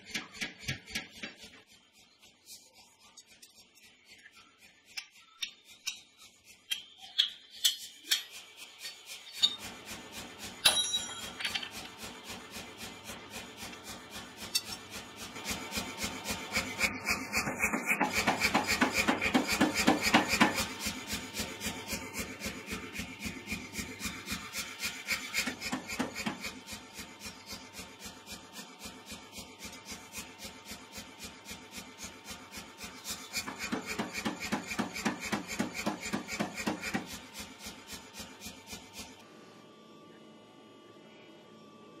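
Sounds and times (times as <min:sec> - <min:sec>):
tongs clinking on anvil: 0:10.6 - 0:11.6.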